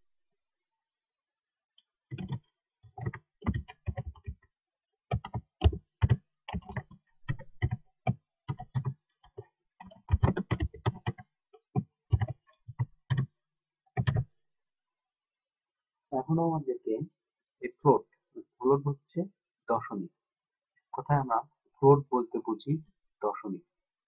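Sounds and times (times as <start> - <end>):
computer keyboard typing: 2.1 - 4.4, 5.1 - 13.3, 14.0 - 14.3.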